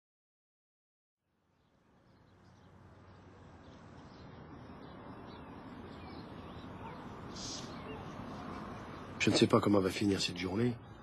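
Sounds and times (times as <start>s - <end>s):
faint bird chirps: 1.6s - 9.5s.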